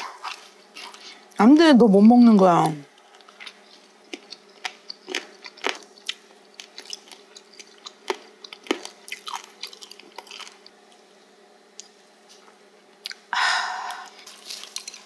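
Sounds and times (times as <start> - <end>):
crunchy chewing: 0.0 - 1.3, 2.9 - 11.0, 14.0 - 15.0.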